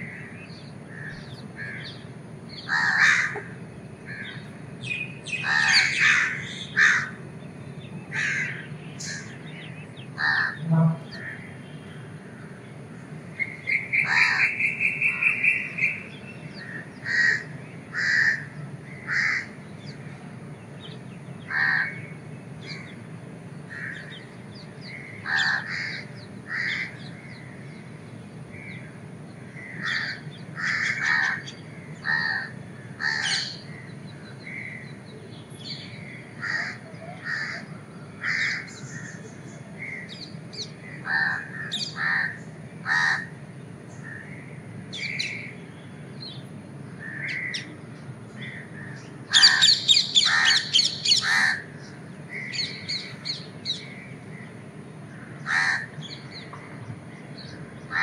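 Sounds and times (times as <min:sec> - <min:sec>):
crows cawing: 0:00.0 - 0:04.5, 0:05.3 - 0:07.2, 0:08.1 - 0:09.4, 0:10.2 - 0:11.5, 0:13.9 - 0:15.9, 0:16.6 - 0:20.1, 0:21.5 - 0:23.0, 0:23.7 - 0:27.7, 0:29.5 - 0:34.8, 0:36.4 - 0:39.2, 0:39.8 - 0:43.4, 0:47.0 - 0:47.7, 0:48.4 - 0:54.1, 0:55.1 - 0:56.5
low steady hum: 0:00.0 - 0:58.0.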